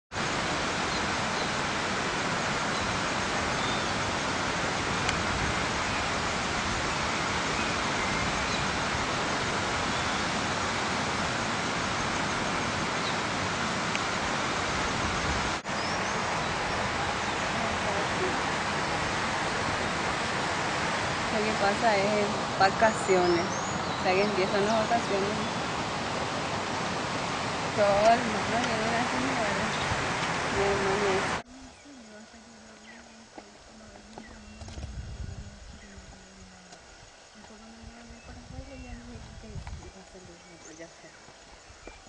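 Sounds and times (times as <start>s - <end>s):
steady rushing noise: 0.1s - 31.8s.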